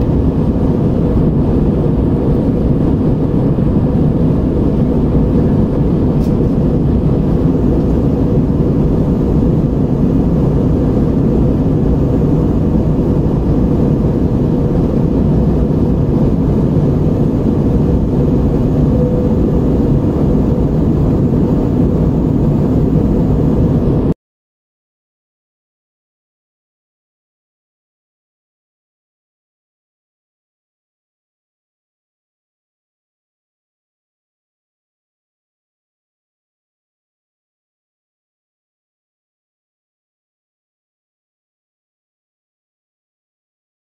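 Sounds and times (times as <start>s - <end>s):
faint steady hum: 0.0s - 24.2s
jet engines and rushing air: 0.0s - 24.2s.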